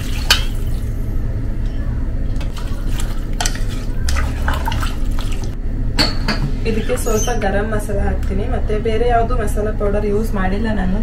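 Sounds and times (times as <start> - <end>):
wooden spatula stirring pot: 2.4 - 5.6.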